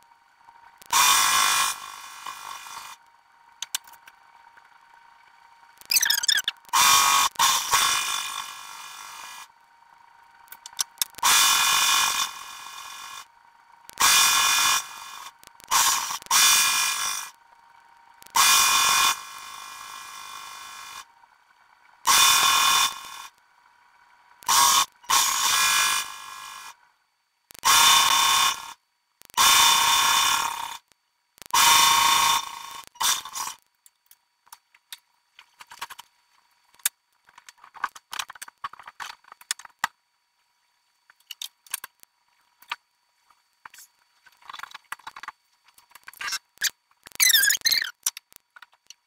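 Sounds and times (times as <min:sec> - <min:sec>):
high-pitched serger whir: 0:00.9 - 0:03.0, 0:05.9 - 0:09.5, 0:10.7 - 0:13.3, 0:14.0 - 0:17.4, 0:18.3 - 0:21.1, 0:22.1 - 0:23.4, 0:24.5 - 0:26.8, 0:31.6 - 0:33.6.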